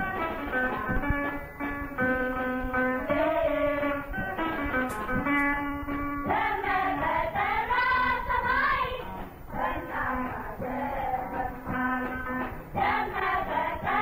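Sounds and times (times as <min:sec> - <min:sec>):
person singing a melody: 0:02.7 - 0:05.0, 0:06.3 - 0:14.0.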